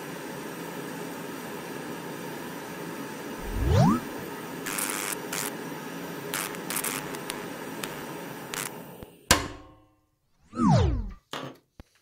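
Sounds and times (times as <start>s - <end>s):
stove burner hissing: 4.4s - 9.3s.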